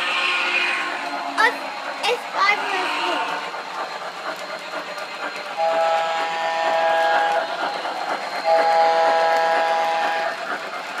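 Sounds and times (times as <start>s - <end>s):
model train steam whistle: 0.0s - 1.4s, 5.6s - 7.7s, 8.4s - 10.4s
model train wheels rolling: 0.0s - 11.0s.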